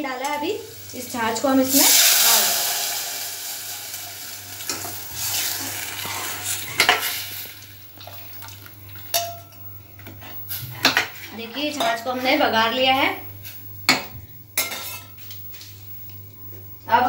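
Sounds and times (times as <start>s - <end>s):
liquid sizzling in hot oil: 0.0s - 9.8s
spoon clinking against pot: 9.1s - 9.6s.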